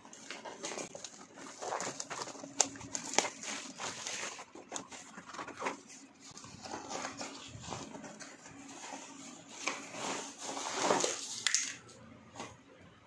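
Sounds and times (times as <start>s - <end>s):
cardboard box scraping and rustling: 3.4s - 11.3s.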